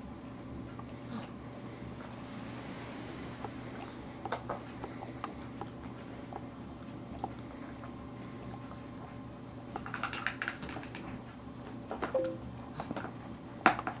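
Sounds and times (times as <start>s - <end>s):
steady low hum: 0.0s - 9.7s.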